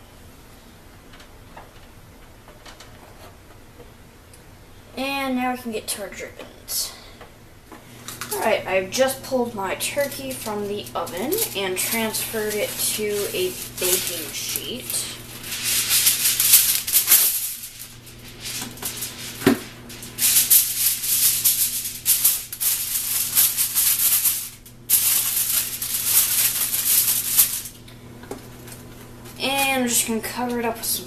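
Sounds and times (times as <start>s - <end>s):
aluminium foil crinkling: 7.9s - 30.7s.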